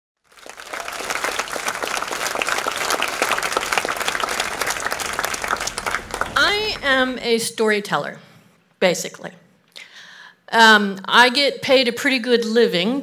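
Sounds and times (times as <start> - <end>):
audience applauding: 0.2 - 7.4.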